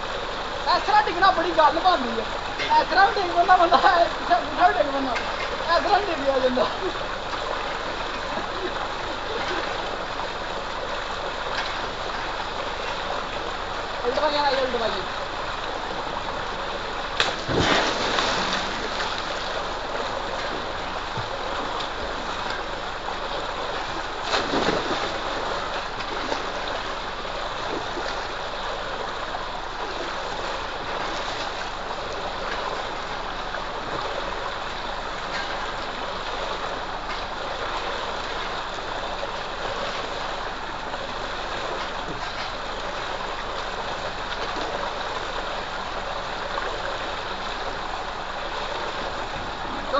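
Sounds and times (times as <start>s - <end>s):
water gushing from a pipe: 0.0s - 49.9s
person splashing into water: 17.2s - 19.3s, 24.2s - 25.4s.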